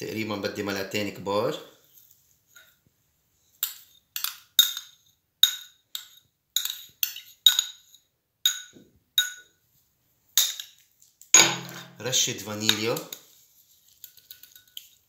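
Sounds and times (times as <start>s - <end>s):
metal spoon clinking on bowls: 3.6s - 9.6s, 11.4s - 12.0s, 14.0s - 15.0s.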